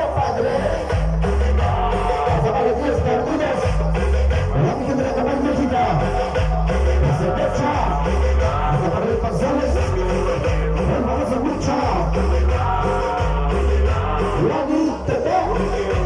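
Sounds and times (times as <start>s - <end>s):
latin dance music with singing: 0.0s - 16.0s.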